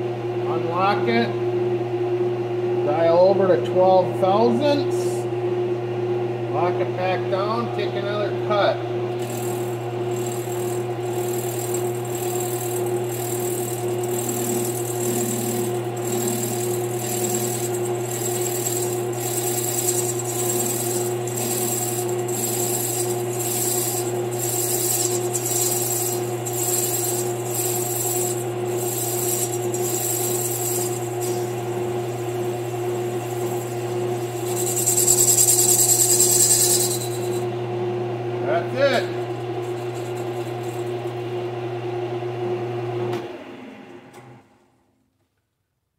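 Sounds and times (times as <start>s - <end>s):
lathe motor hum: 9.0s - 38.0s, 39.2s - 41.6s
lathe cutting hiss: 9.2s - 37.5s.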